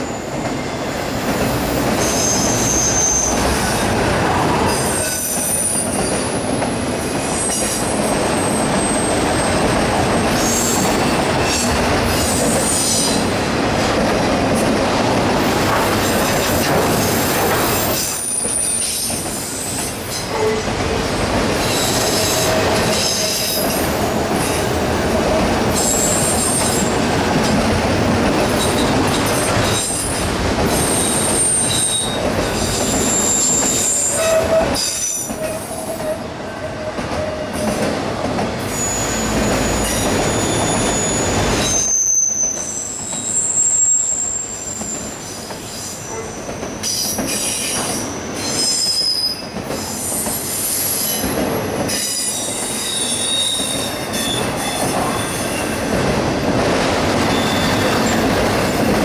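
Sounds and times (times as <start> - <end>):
steel wheels rumbling on rail: 0.0 - 59.0
low long wheel squeal: 1.8 - 3.8, 30.8 - 36.2, 38.7 - 45.2, 51.9 - 55.8, 57.3 - 58.3
high-pitched wheel squeals: 2.0 - 3.5, 30.9 - 36.2, 38.7 - 45.2.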